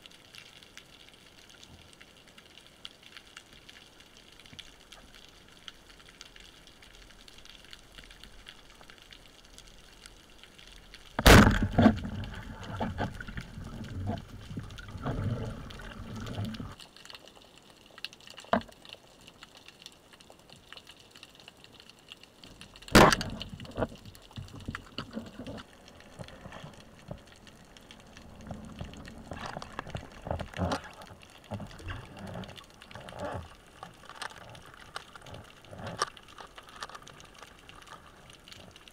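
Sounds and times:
speargun crack underwater: 11.2 - 14.2, 22.8 - 25.6
fish thrashing in water: 11.2 - 16.8.

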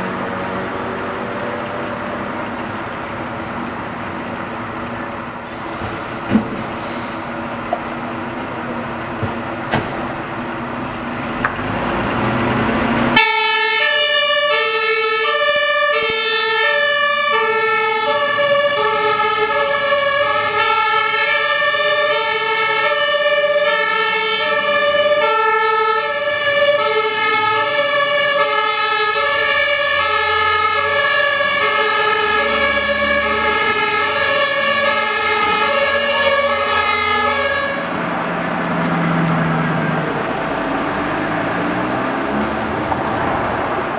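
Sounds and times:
two-tone fire engine sirens: 0.0 - 5.6, 11.6 - 43.9
diesel truck engines: 0.0 - 43.9.

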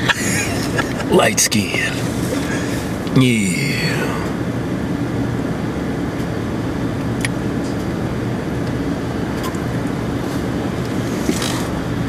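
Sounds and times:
car engine idling: 0.0 - 5.2.

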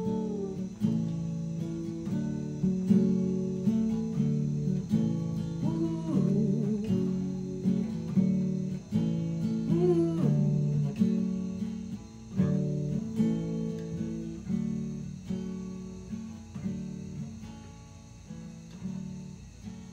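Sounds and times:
acoustic guitar strumming: 0.0 - 19.9.

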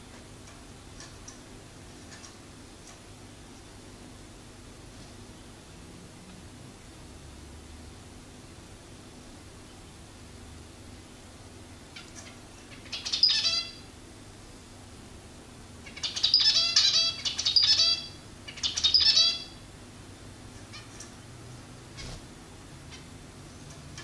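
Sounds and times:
finch nasal calls: 21.9 - 22.3.

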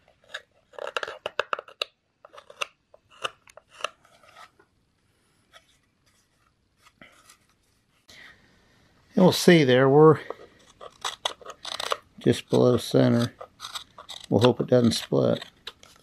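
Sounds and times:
knife slicing walnut: 10.6 - 16.0.

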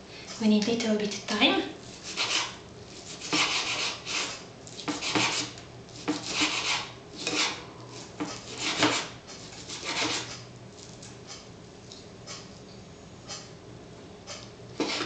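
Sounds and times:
knife chopping on wooden board: 3.2 - 7.6, 8.2 - 9.1.

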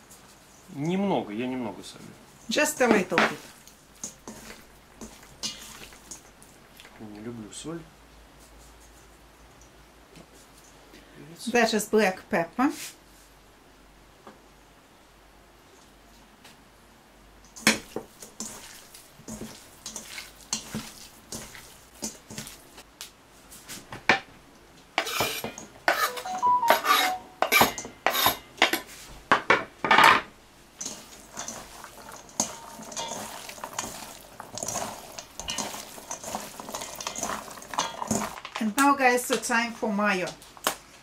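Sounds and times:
wet squishing of mixing meat: 3.3 - 7.2, 17.5 - 22.8, 30.8 - 38.6
knife scraping wooden board: 25.0 - 26.2.

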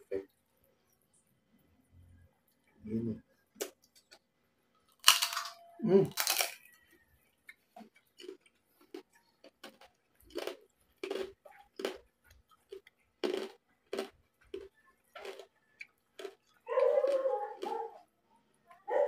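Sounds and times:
chewing crunches: 3.5 - 18.1.

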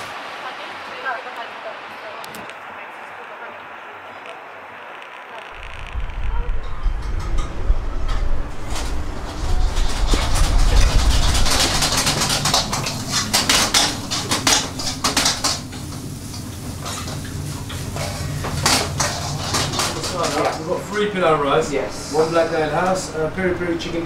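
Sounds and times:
low rumble of street traffic: 0.0 - 24.0
pans and utensils clattering: 8.7 - 21.1.

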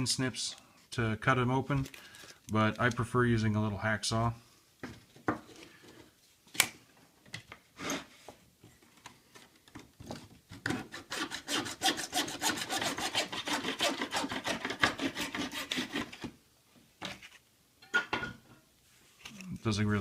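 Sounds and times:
hacksaw cutting plastic sheet: 10.7 - 16.3.

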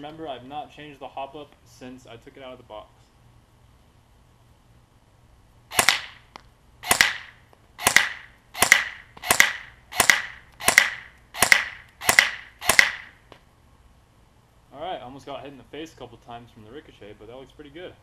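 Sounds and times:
airsoft rifle shots: 5.7 - 13.3.

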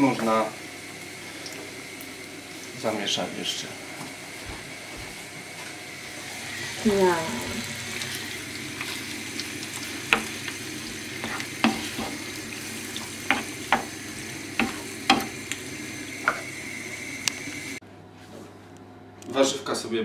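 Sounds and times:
vegetables sizzling in a frying pan: 0.0 - 3.7, 5.9 - 17.8
wooden spoon knocking a pan: 13.2 - 14.0, 14.6 - 15.4.

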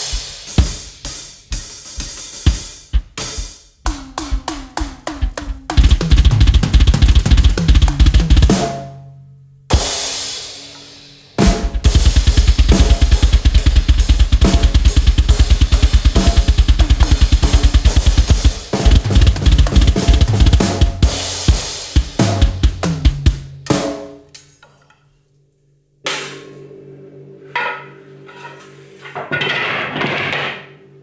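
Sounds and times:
heavy rock drum beat: 0.0 - 8.9, 9.7 - 24.2
drum kit hits: 0.0 - 9.0, 9.7 - 24.3, 26.0 - 26.7
cymbal crashes: 9.7 - 22.5.

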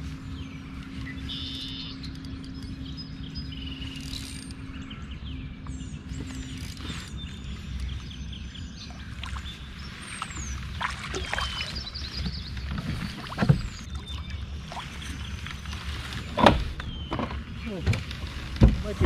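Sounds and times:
water splashing against kayak hull: 9.0 - 19.0.

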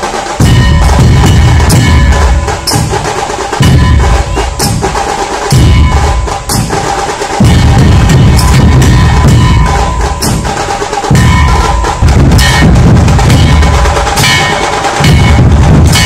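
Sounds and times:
drum-led music: 0.0 - 16.0.

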